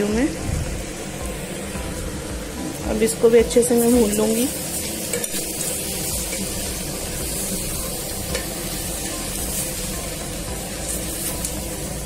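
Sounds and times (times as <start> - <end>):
food sizzling in a pan: 0.0 - 12.0.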